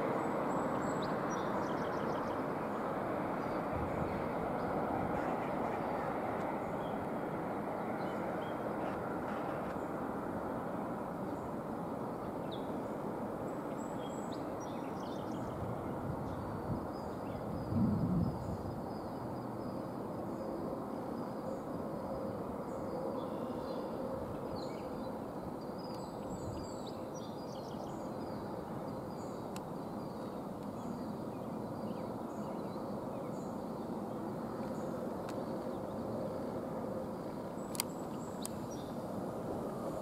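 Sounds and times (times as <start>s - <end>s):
distant freight train rumble: 0.0s - 25.6s.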